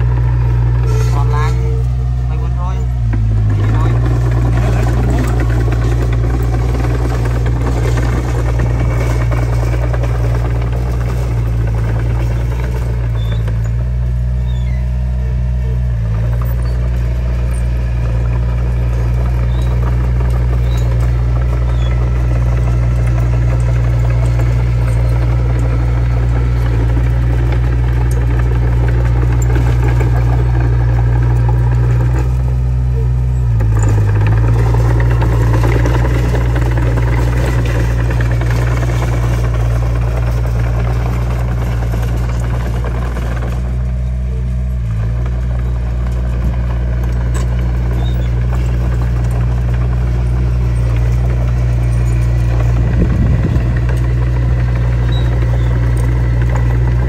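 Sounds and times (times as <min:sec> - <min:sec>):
bulldozer diesel engine running: 0:00.0 - 0:57.0.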